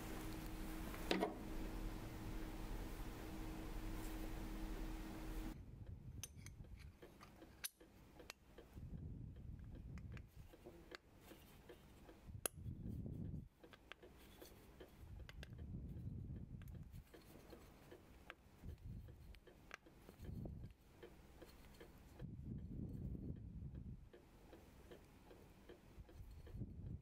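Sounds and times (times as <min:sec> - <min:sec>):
metallic clicks of brass parts: 0:06.2 - 0:08.7.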